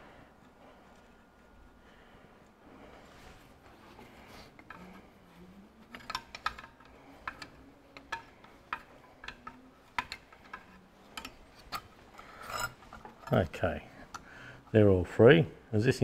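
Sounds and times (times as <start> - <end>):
spanner rubbing on metal: 5.8 - 14.2.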